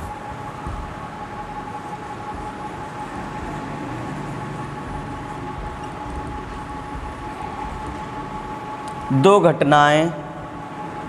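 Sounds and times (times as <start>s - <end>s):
background hum and hiss: 0.0s - 11.0s.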